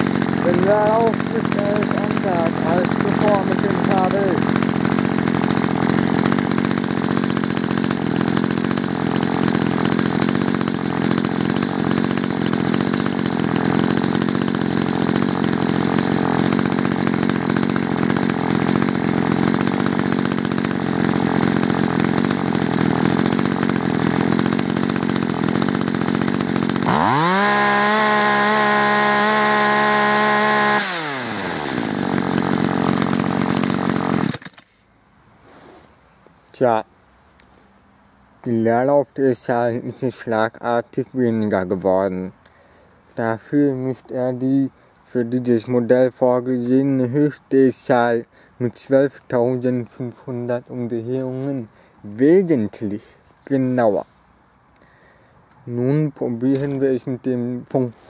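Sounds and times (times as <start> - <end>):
chainsaw engine idling and revving: 0.0 - 34.4.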